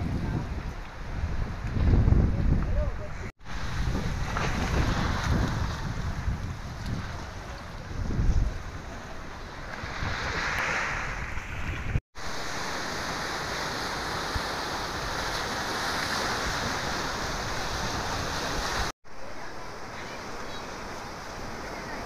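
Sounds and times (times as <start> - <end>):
wind buffeting microphone: 0.0 - 12.0
surf breaking over rocks: 3.4 - 8.8.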